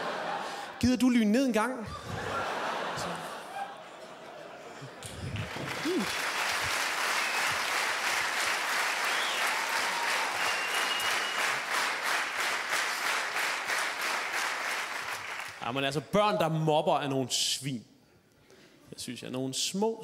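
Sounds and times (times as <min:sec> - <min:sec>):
audience applause: 0:05.0 - 0:15.6.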